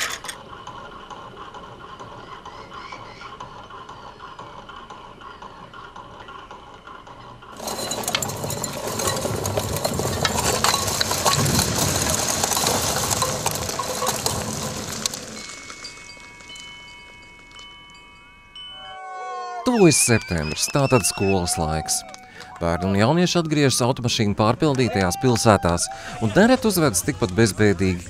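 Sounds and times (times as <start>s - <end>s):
sand and earth pouring down: 7.6s - 16.8s.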